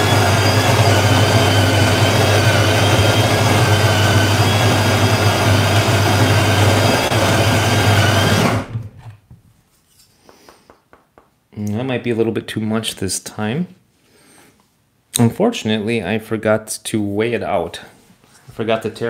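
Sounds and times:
coffee grinder motor whine: 0.0 - 8.9.

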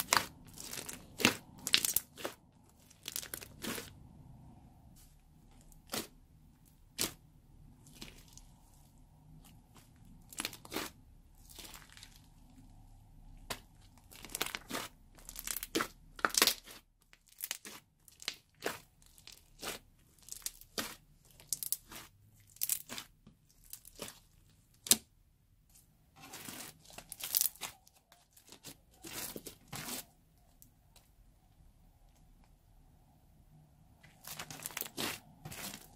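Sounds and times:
slime squishing with wet crackles: 0.0 - 32.9, 33.7 - 35.9.

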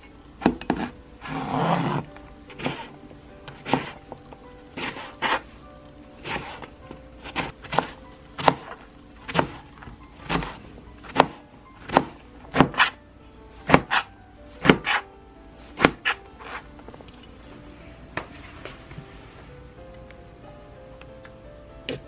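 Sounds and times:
knife chopping on a cutting board: 0.4 - 0.9, 1.8 - 2.9, 3.5 - 4.0, 4.8 - 5.4, 6.2 - 13.0, 13.6 - 15.0, 15.8 - 16.6.

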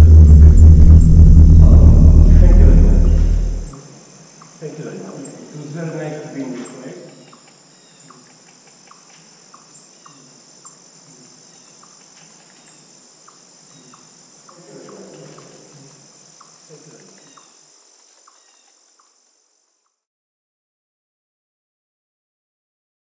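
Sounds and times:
high-pitched insect chorus: 0.0 - 20.0
ticking insect chirps: 2.8 - 5.6, 6.7 - 20.0.

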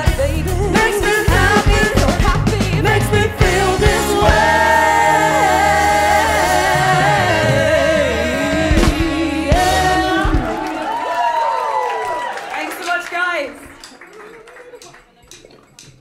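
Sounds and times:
drums: 0.0 - 11.4
backing singers: 0.1 - 12.7.

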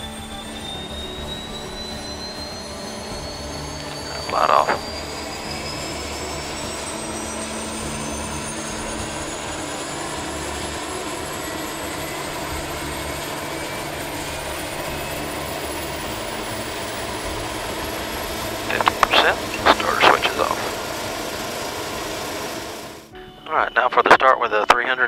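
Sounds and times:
turboprop engine spooling up: 0.0 - 23.1.

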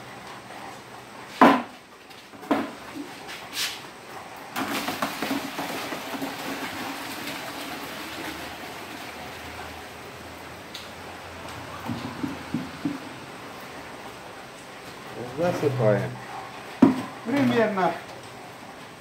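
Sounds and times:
knocks on a metal barrel: 11.9 - 13.0, 16.8 - 17.1.

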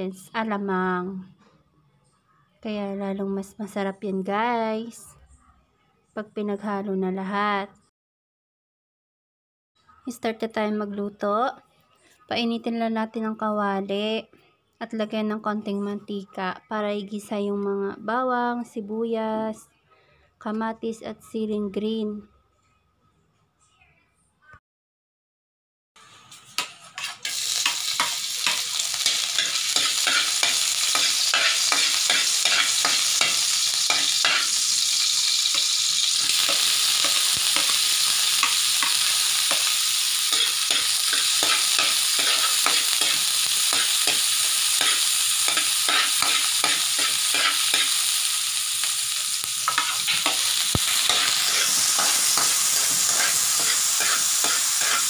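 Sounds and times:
garlic and onion sizzling in oil: 26.0 - 55.0
utensil clicking and scraping wok: 26.3 - 55.0.

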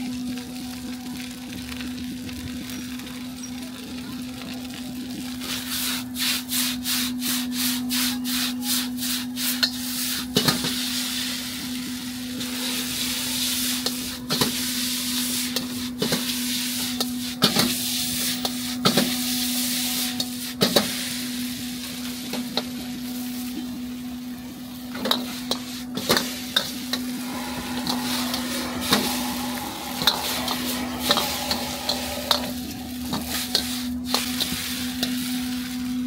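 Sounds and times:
noodles sizzling: 9.2 - 36.0
metal spatula scraping a wok: 25.0 - 35.6.

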